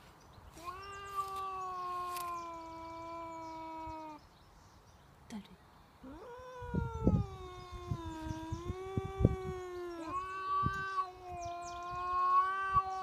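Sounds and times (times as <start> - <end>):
cat yowling: 0.6 - 4.2, 6.0 - 13.0.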